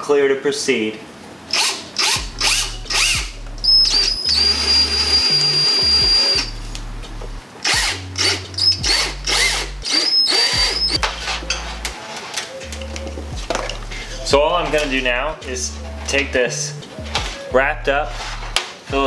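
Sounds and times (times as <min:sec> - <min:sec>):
cordless drill whining: 0:01.5 - 0:06.5, 0:07.6 - 0:11.0.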